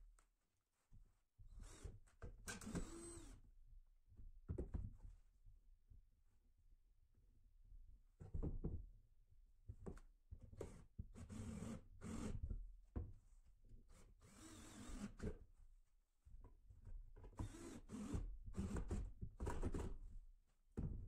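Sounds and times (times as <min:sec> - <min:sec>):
cordless drill running: 0:02.6 - 0:03.4, 0:14.3 - 0:15.1, 0:17.4 - 0:18.8.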